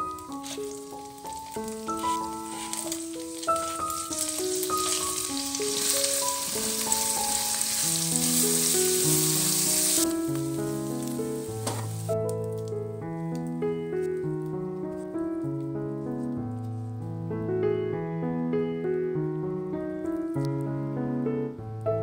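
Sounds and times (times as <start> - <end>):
spatula stirring: 0.0 - 10.1
hot oil sizzling in a wok: 0.0 - 12.2
background music single notes: 0.0 - 22.0.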